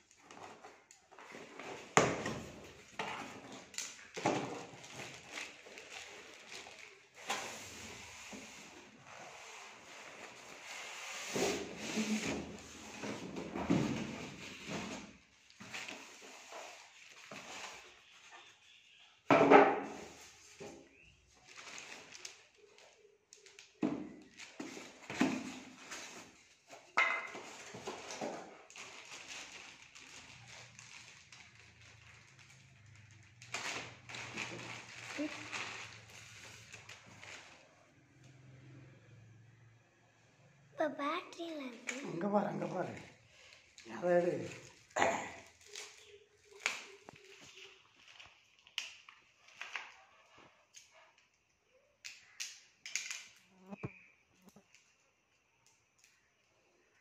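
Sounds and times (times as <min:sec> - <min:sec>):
foam packaging rubbing and rustling: 0:00.0 - 0:19.0, 0:19.9 - 0:23.6, 0:24.3 - 0:37.7.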